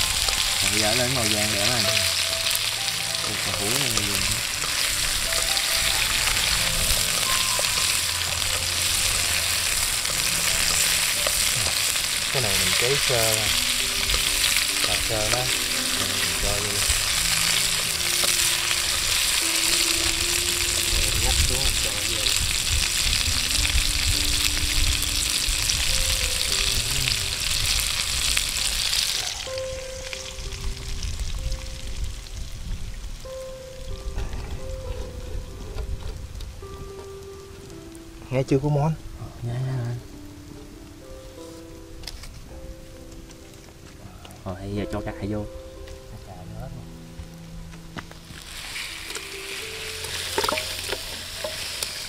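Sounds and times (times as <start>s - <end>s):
food sizzling in oil: 0.0s - 34.9s, 47.3s - 52.0s.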